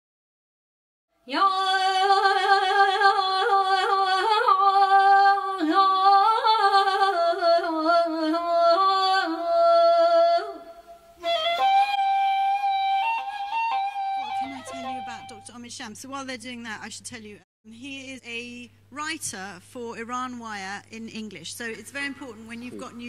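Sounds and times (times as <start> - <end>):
unaccompanied melody with trills: 11.2 - 15.6.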